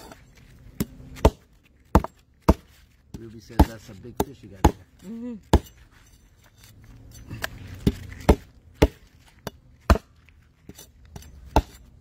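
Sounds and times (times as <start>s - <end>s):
cleaver chopping on wooden board: 0.8s - 5.8s, 7.4s - 10.2s, 11.5s - 11.8s.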